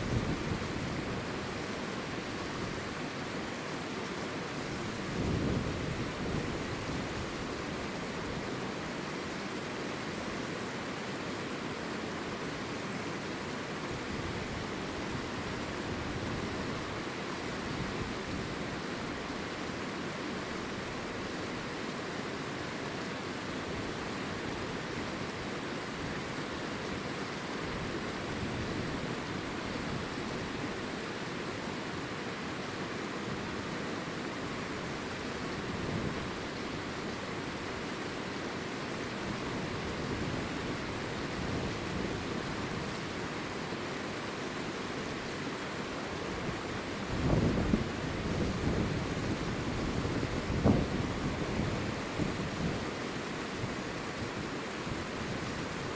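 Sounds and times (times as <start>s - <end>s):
wind blowing across microphone: 0.0s - 1.5s, 4.6s - 8.5s, 35.5s - 36.9s, 46.4s - 55.9s.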